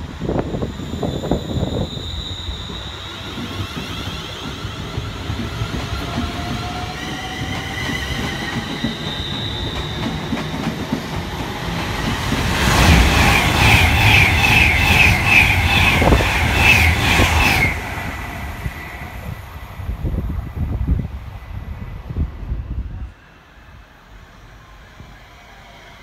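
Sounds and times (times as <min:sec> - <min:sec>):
train passing at speed: 0:00.0 - 0:26.0.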